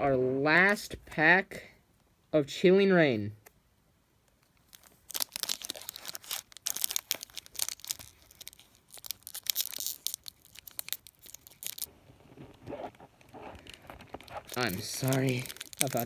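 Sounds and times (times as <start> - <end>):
foil wrapper crinkling: 4.6 - 16.0.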